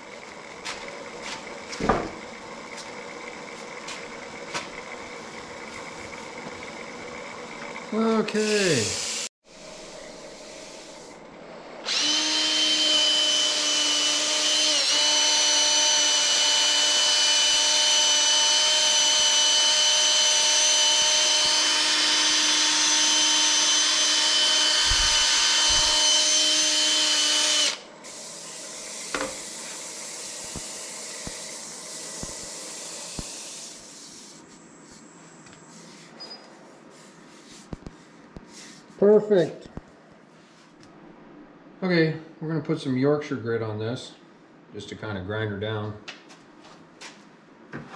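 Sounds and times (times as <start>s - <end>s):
cordless drill motor whine: 0.1s - 10.4s, 11.7s - 35.7s.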